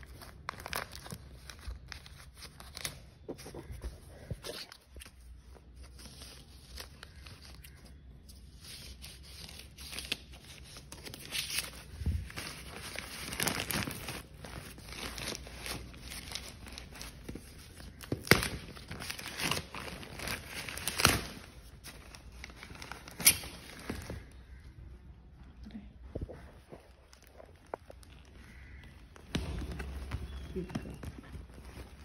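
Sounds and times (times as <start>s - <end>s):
packaging tearing and rustling: 8.8s - 24.4s, 26.9s - 32.0s
sharp packaging crackles: 8.8s - 24.5s, 26.8s - 32.0s.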